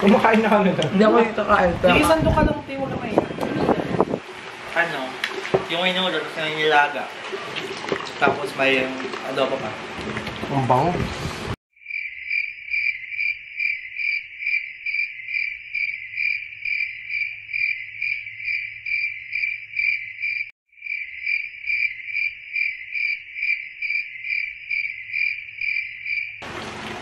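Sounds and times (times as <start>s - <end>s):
cricket chirping sound effect: 11.8s - 26.4s.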